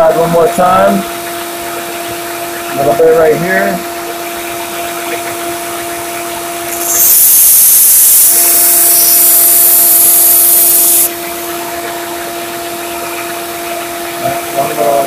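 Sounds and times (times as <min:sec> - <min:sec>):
belt sander humming: 0:06.7 - 0:11.1
blade grinding on sanding belt: 0:06.7 - 0:11.1.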